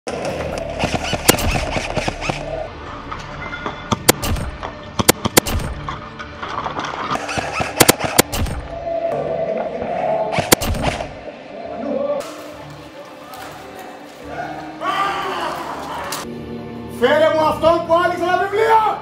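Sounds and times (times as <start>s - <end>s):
airsoft guns firing: 0.7s - 2.6s, 4.0s - 5.8s, 7.2s - 8.7s, 10.4s - 11.2s.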